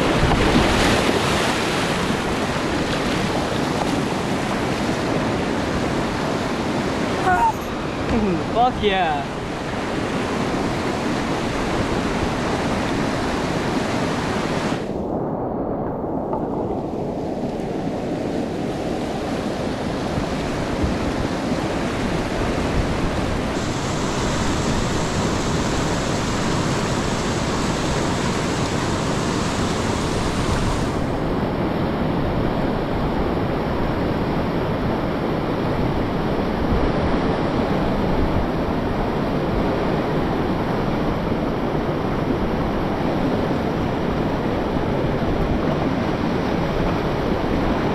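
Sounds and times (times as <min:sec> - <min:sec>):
whitewater rapids rushing: 0:00.0 - 0:14.9, 0:18.4 - 0:31.1.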